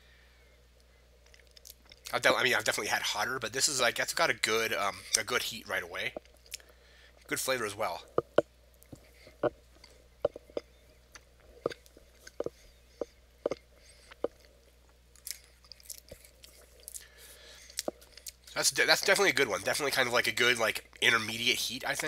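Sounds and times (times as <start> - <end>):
person chewing crunchy chip: 15.2 - 18.5.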